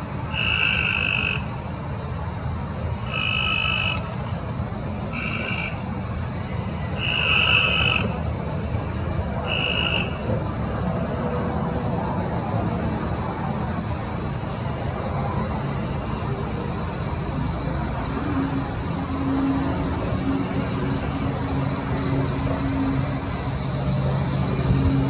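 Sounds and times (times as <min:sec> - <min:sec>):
steady high-pitched hum: 0:00.0 - 0:25.0
frog calling: 0:00.2 - 0:01.8, 0:02.9 - 0:08.3, 0:09.4 - 0:10.4.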